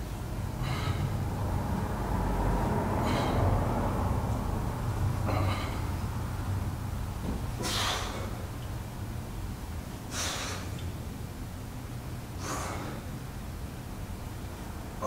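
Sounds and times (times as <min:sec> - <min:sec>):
low steady hum: 0:00.0 - 0:15.0
man exhaling sharply: 0:07.6 - 0:08.4, 0:10.1 - 0:10.8, 0:12.4 - 0:13.1.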